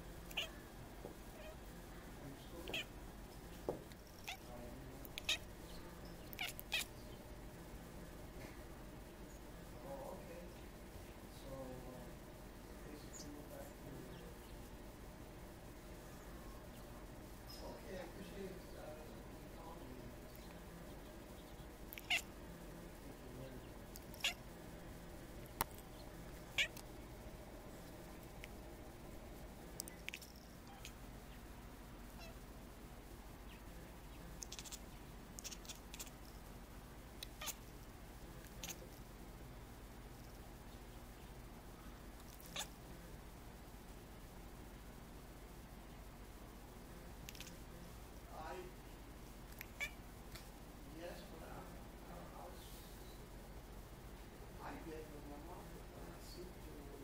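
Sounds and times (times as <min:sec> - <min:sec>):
cat chirping: 0:00.3 - 0:00.6, 0:01.3 - 0:01.6, 0:02.6 - 0:03.0, 0:04.1 - 0:07.2, 0:20.3 - 0:22.3, 0:23.9 - 0:24.4, 0:25.7 - 0:26.8, 0:29.8 - 0:31.4, 0:32.1 - 0:32.4, 0:33.4 - 0:36.3, 0:37.2 - 0:37.8, 0:38.4 - 0:38.9, 0:42.3 - 0:42.8, 0:47.3 - 0:47.6, 0:49.5 - 0:50.0
cat making chirping meows: 0:00.3 - 0:00.6, 0:01.4 - 0:01.6, 0:02.6 - 0:02.9, 0:04.2 - 0:04.5, 0:05.2 - 0:05.4, 0:06.2 - 0:06.9, 0:21.9 - 0:22.3, 0:24.0 - 0:24.4, 0:26.5 - 0:26.8, 0:30.0 - 0:31.0, 0:32.2 - 0:32.4, 0:34.4 - 0:34.8, 0:35.4 - 0:36.1, 0:37.3 - 0:37.6, 0:42.4 - 0:42.7, 0:49.6 - 0:50.0.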